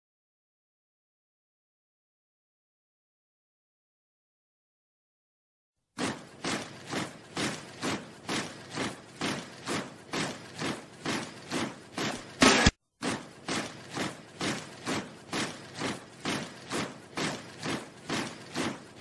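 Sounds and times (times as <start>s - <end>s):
stomping percussion beat: 6.3s - 12.7s.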